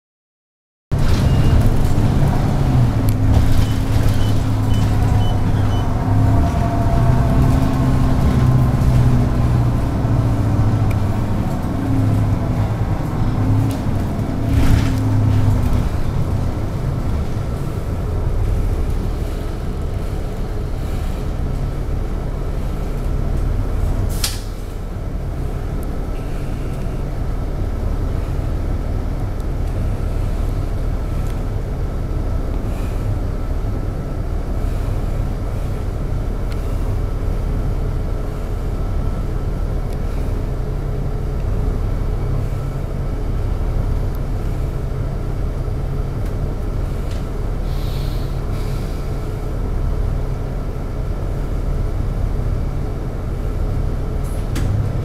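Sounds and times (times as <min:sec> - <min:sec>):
bus engine running: 0:00.9 - 0:55.0.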